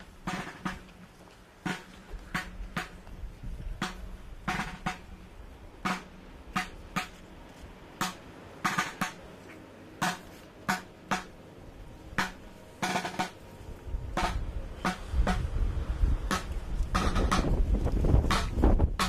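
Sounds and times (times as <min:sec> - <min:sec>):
snare drums beating a march: 0:00.2 - 0:01.0, 0:01.6 - 0:03.0, 0:03.8 - 0:05.1, 0:05.8 - 0:07.2, 0:08.0 - 0:09.2, 0:10.0 - 0:11.4, 0:12.2 - 0:13.4, 0:14.2 - 0:15.5, 0:16.3 - 0:19.0.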